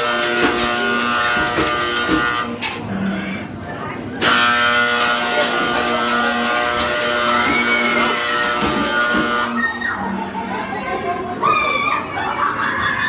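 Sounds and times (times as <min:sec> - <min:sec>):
music with held notes: 0:00.0 - 0:02.7, 0:04.2 - 0:09.6.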